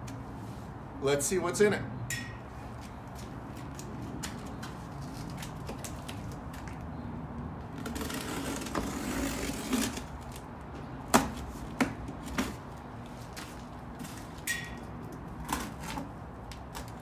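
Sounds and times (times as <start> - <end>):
cardboard tearing and rustling: 7.8 - 10.4.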